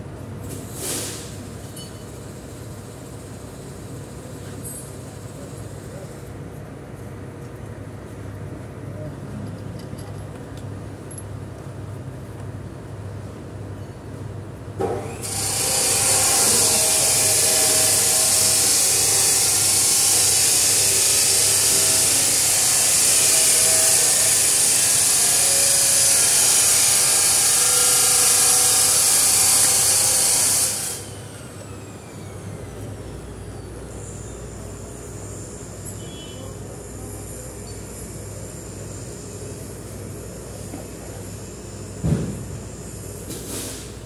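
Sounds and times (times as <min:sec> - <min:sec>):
compressed air hissing: 0:00.5 - 0:01.6, 0:41.4 - 0:44.0
short knock: 0:42.0 - 0:42.4.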